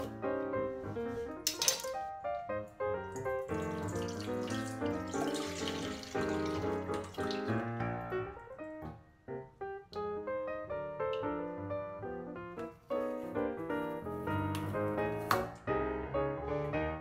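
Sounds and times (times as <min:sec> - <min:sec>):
piano music: 0:00.0 - 0:17.0
water trickling into metal bowl: 0:01.4 - 0:02.0, 0:03.2 - 0:07.6.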